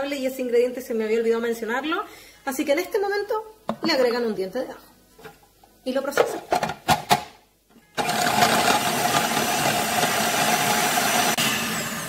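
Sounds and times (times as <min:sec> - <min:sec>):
food processor motor whining: 0:08.0 - 0:12.0.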